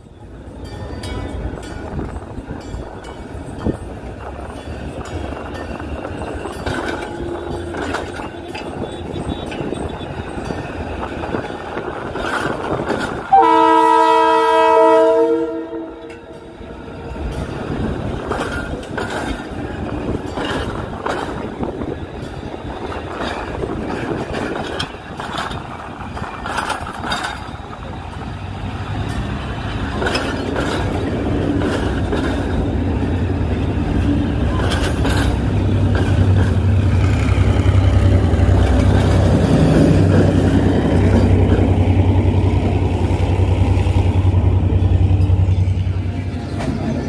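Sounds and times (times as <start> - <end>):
train wheels clacking over rail joints: 0.5 - 13.6, 16.0 - 47.0
train horn blast: 13.3 - 16.6.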